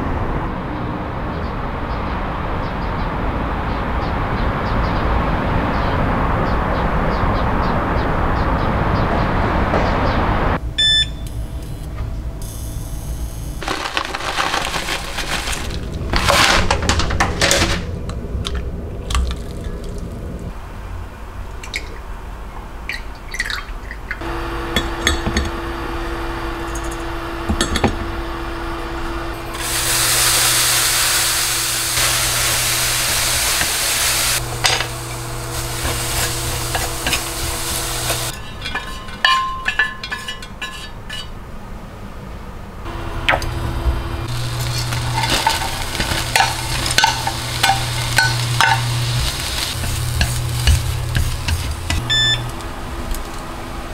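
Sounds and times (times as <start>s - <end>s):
loud rushing hiss: 29.4s - 38.3s
steady low hum: 42.6s - 53.9s.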